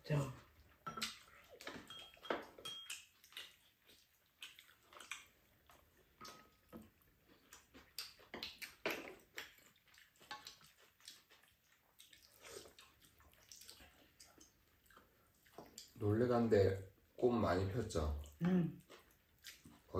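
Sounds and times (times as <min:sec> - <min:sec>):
chewing and lip smacks: 0:00.5 - 0:16.0, 0:18.2 - 0:19.9.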